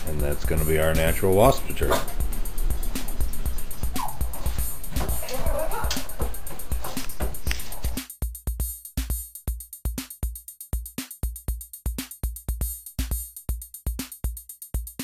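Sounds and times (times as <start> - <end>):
hi-hat clicks: 0.0 - 15.0
kick drums: 0.0 - 15.0.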